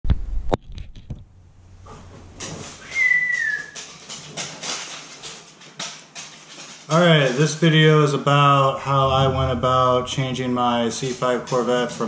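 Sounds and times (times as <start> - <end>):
short high-pitched tone: 8.9 - 10.2.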